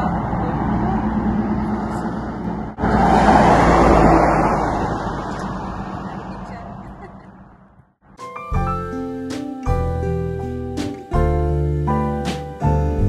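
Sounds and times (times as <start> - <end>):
car passing: 0.0 - 8.0
road vehicle hum: 0.0 - 8.2.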